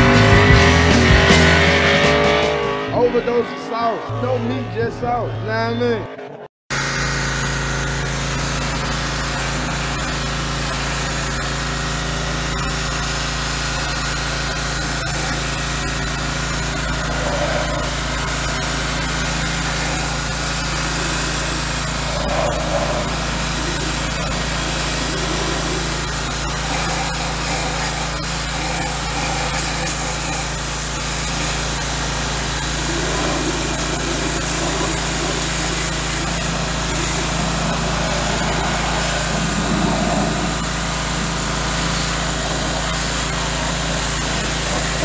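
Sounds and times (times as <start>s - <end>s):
machine hum: 0.0s - 45.0s
hiss: 14.8s - 45.0s.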